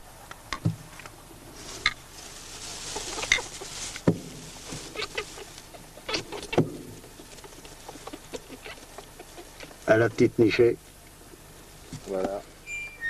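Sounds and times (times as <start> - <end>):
straw rustling: 0.6 - 12.8
hen clucking: 1.6 - 12.0.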